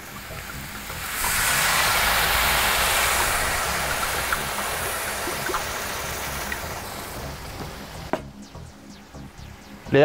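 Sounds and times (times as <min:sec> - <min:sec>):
wine sizzling on hot griddle: 0:00.0 - 0:08.1.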